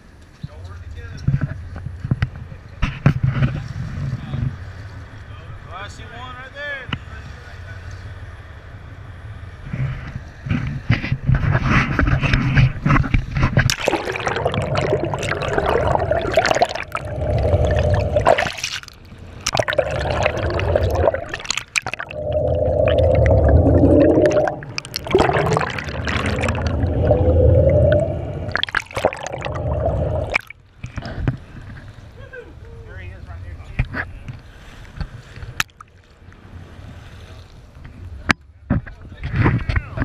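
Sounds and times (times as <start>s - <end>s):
muffled underwater water rushing: 11.4s - 31.2s.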